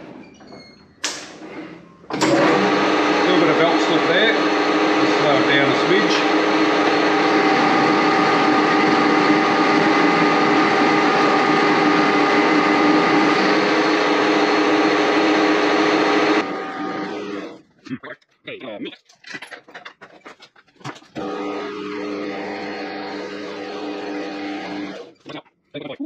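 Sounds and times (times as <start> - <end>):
metal lathe whining: 2.1 - 17.6, 21.2 - 25.3.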